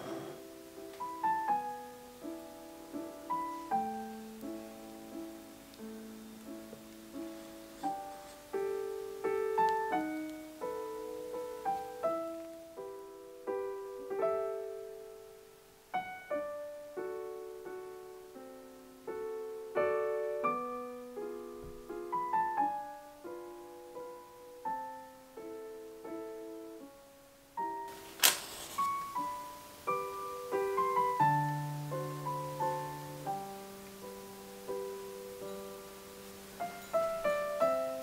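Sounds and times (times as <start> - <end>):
gentle solo piano: 0.0 - 38.0.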